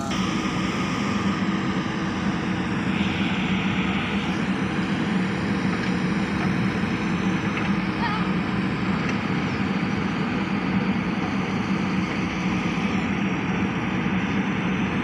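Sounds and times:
diesel engines droning: 0.0s - 15.0s.

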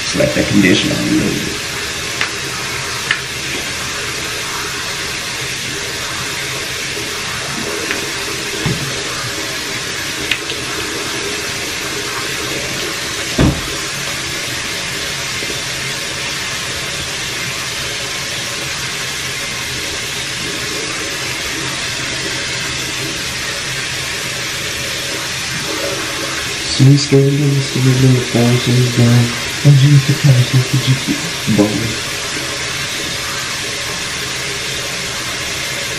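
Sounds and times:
water running from tap: 0.0s - 35.9s
low thump: 13.4s - 13.8s.

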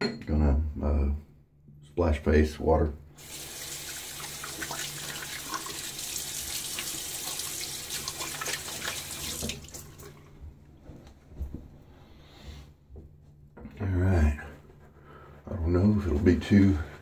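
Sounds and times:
tap water running: 3.1s - 10.4s.

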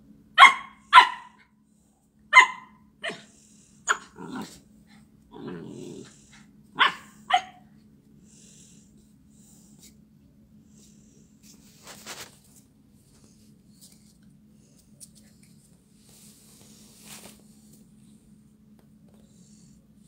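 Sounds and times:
puppy barking: 0.4s - 1.5s, 2.3s - 3.3s, 3.9s - 4.5s, 6.8s - 7.6s
puppy low growling: 3.9s - 7.2s.

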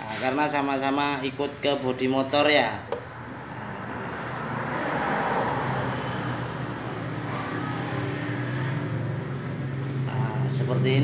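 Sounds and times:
vehicle passing: 2.9s - 11.0s.

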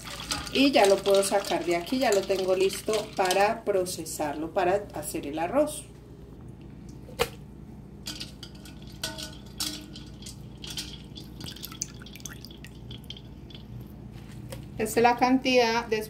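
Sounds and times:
water dripping in a steel bowl: 0.0s - 3.5s, 8.0s - 13.9s.

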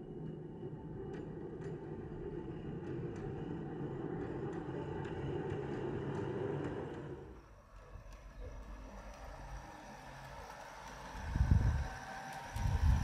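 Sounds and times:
model railcar rumbling on track: 7.8s - 13.0s.

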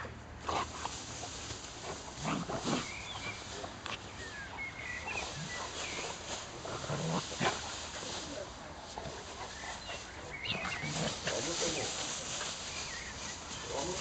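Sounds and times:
rustling grass: 0.0s - 14.0s
dogs growling and grunting: 1.8s - 12.4s.

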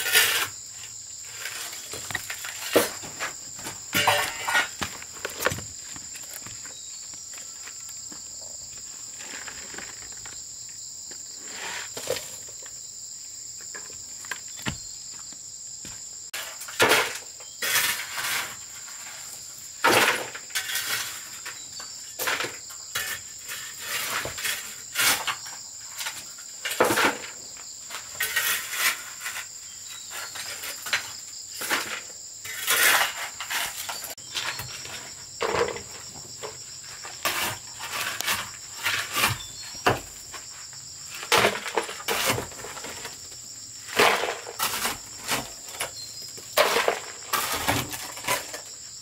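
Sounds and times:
scrapes and knocks: 0.0s - 10.4s, 11.1s - 12.8s, 13.6s - 48.8s
insects droning: 0.0s - 49.0s.

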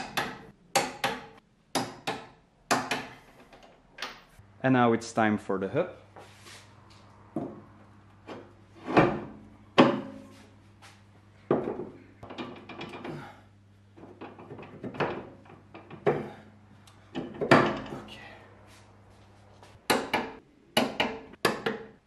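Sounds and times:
metal clunks and knocks: 7.3s - 10.3s, 11.5s - 13.3s, 14.0s - 16.4s, 17.1s - 18.1s.

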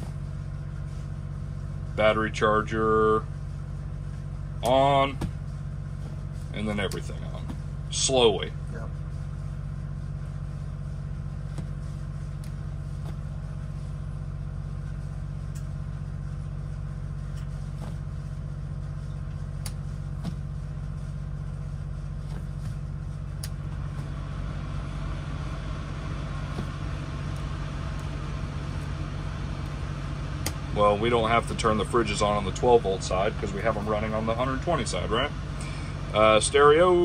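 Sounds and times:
diesel generator humming: 0.0s - 37.0s
breaker switches clicking: 30.4s - 30.6s.

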